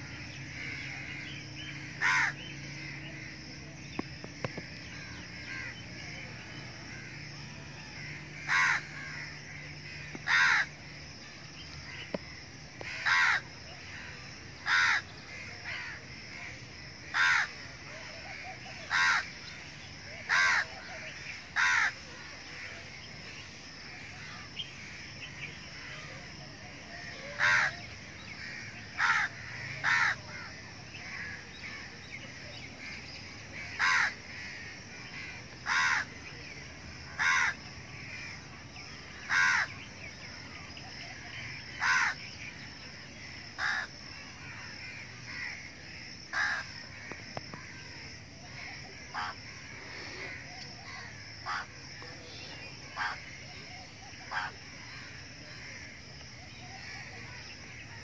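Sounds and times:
crow cawing: 0.5 - 3.4, 4.4 - 6.2, 6.8 - 10.8, 12.8 - 17.6, 18.3 - 19.6, 20.2 - 22.7, 27.0 - 31.9, 33.6 - 36.1, 37.1 - 38.4, 39.1 - 39.8, 41.7 - 42.3, 43.2 - 51.7, 52.9 - 53.4, 54.3 - 56.0.

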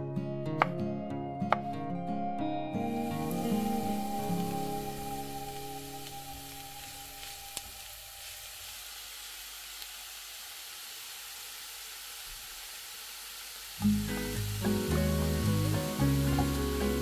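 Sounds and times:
background music: 0.0 - 7.8, 13.8 - 17.0
vegetables sizzling in oil: 2.9 - 17.0.

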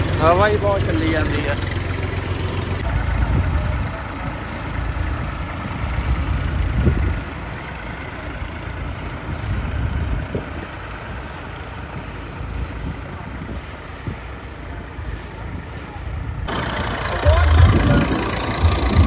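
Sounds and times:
tractor engine running: 0.0 - 19.0
wind rumbling on microphone: 2.8 - 7.8, 8.8 - 16.5, 17.3 - 19.0.

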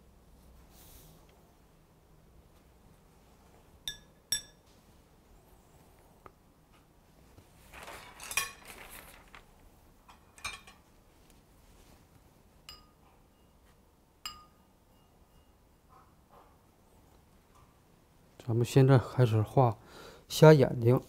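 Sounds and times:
brush clinking against ceramic dish: 3.9 - 4.7, 12.6 - 15.6.

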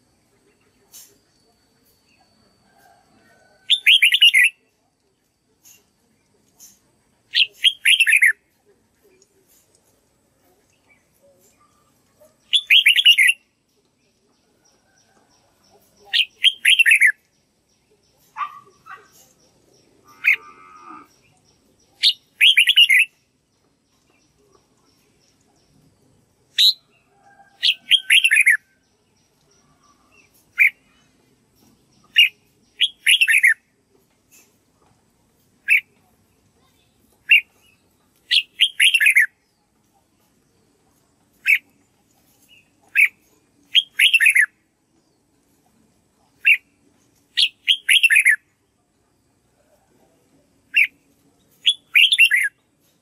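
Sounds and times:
bulbul singing chirpy phrases: 7.3 - 8.4, 43.0 - 44.5.

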